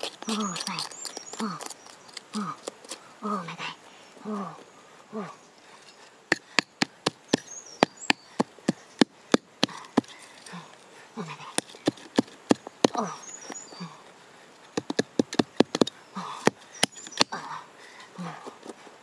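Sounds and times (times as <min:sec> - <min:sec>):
wooden stick knocking into earth: 0:14.8 - 0:17.4.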